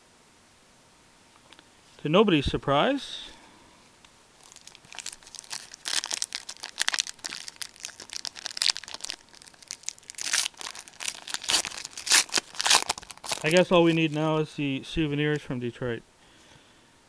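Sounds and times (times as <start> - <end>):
foil wrapper tearing and crinkling: 4.4 - 14.3.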